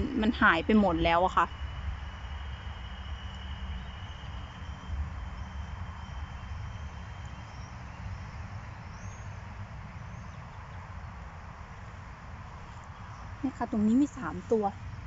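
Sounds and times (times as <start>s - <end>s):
low rumble on microphone: 0.0s - 15.0s
faint high bird chirps: 0.1s - 9.4s.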